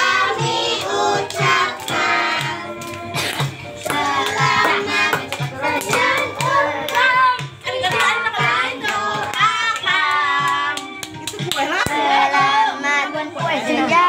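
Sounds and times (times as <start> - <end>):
children and women singing: 0.0 - 10.9, 11.6 - 14.0
clapping in time: 8.8 - 12.0.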